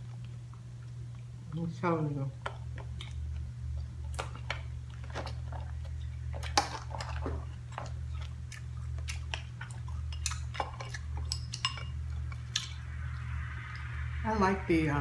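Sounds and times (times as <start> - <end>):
chewing: 0.0 - 1.5, 2.4 - 12.8
steady low hum: 0.0 - 15.0
crab shells cracking: 2.4 - 12.8.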